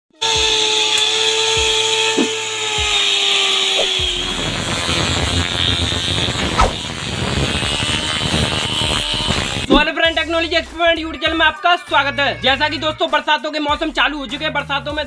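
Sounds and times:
angle grinder cutting grass: 0.1s - 9.9s.

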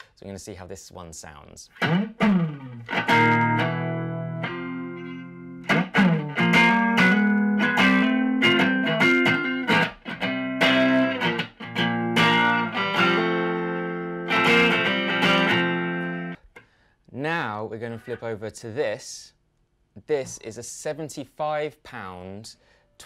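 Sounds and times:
electric guitar chords and notes: 1.7s - 16.4s.

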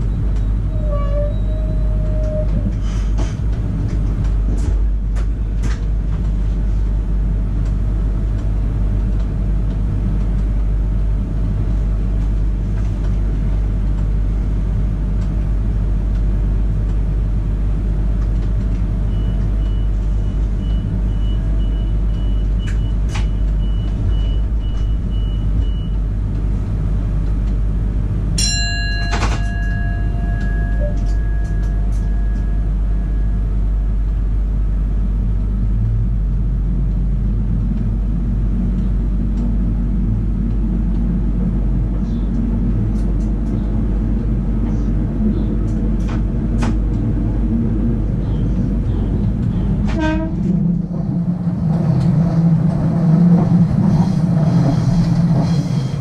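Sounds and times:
train equipment hum and rumble: 0.0s - 56.0s
ringing tone: 28.4s - 33.3s.

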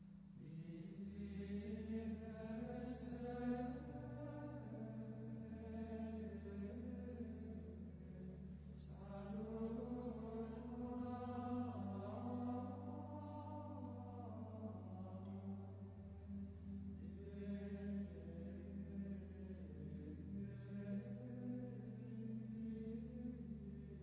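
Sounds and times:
sustained low chords: 0.0s - 24.0s
chant-like singing: 0.4s - 24.0s.

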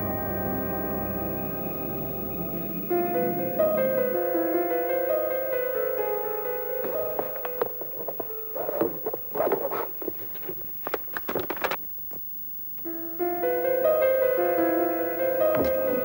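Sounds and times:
keyboard chords music: 0.0s - 9.3s, 12.9s - 16.0s
papers and folders rustling: 6.1s - 12.8s.

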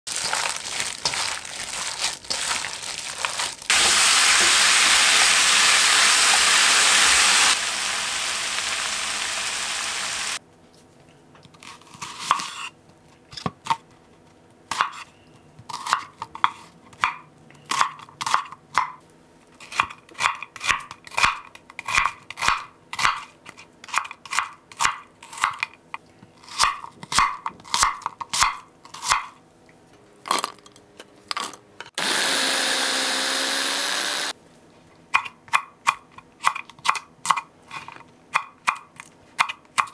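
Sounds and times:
wet squelching of meat mixed by hand: 0.1s - 3.7s
loud steady sizzle: 3.6s - 10.4s.

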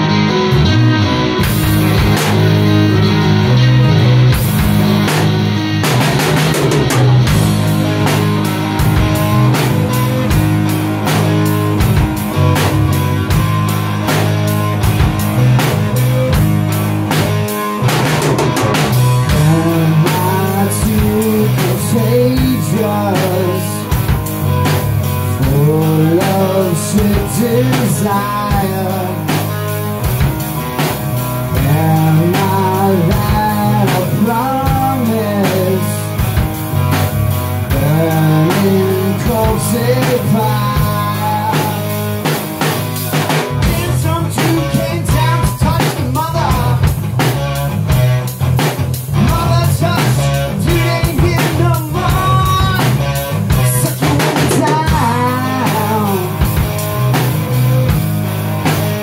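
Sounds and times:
bass guitar: 0.0s - 59.0s
drum kit: 0.0s - 59.0s
electric guitar: 0.0s - 59.0s
man singing: 19.3s - 24.0s, 25.3s - 29.4s, 31.5s - 36.2s, 37.7s - 42.2s, 43.6s - 47.0s, 49.1s - 56.6s.

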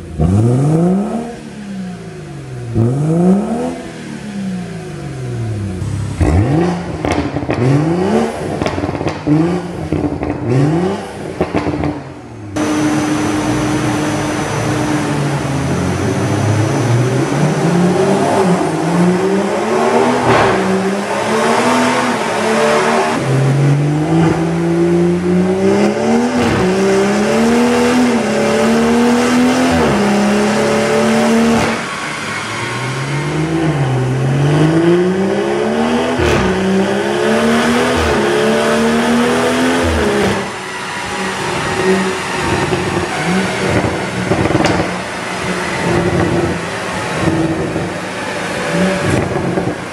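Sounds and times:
car engine revving on dyno: 0.0s - 49.9s
exhaust cracks: 5.8s - 16.1s, 20.0s - 21.4s, 36.1s - 38.3s, 39.8s - 49.9s.

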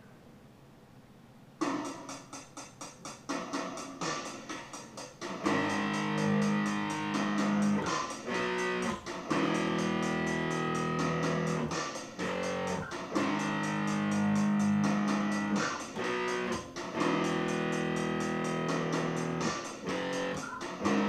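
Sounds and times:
fast ticking beat: 1.9s - 21.0s
electric bass guitar notes: 5.4s - 21.0s.

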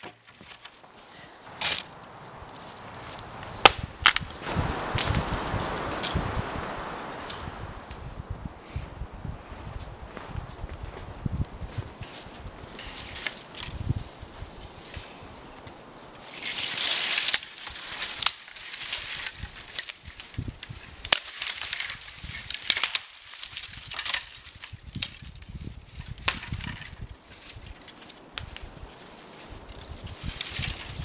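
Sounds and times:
dry wood cracking: 0.0s - 6.2s, 11.4s - 31.0s
twigs and branches snapping: 0.0s - 8.1s, 11.4s - 31.0s
feet shuffling in snow: 8.6s - 17.2s.

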